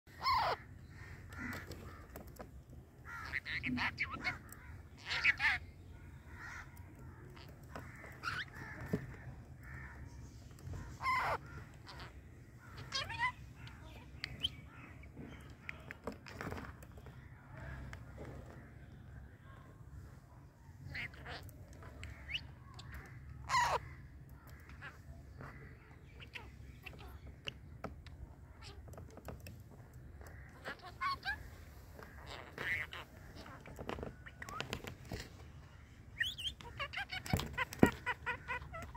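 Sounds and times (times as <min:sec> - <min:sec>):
parrots calling harshly: 0:00.1 - 0:02.1, 0:03.0 - 0:10.0, 0:10.7 - 0:15.8, 0:20.8 - 0:27.5, 0:28.5 - 0:28.9, 0:30.2 - 0:34.8, 0:36.2 - 0:38.9
bird chirps and clicks: 0:00.1 - 0:38.9.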